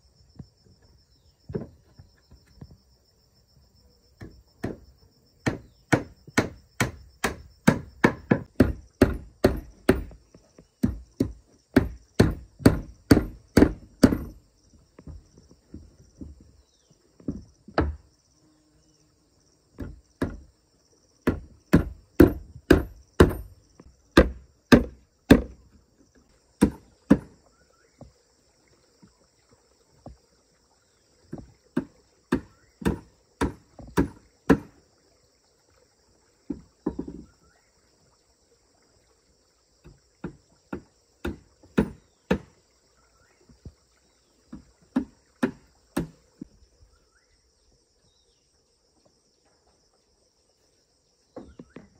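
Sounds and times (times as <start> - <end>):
high insect buzz: 0.0 - 51.9
hammer nailing wooden planks: 5.4 - 10.2, 10.8 - 14.4, 21.2 - 23.6, 24.2 - 25.6, 40.2 - 42.5.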